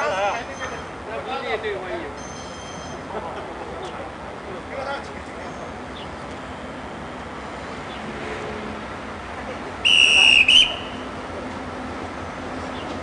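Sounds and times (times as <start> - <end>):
high-pitched train whistle: 9.8 - 11.1.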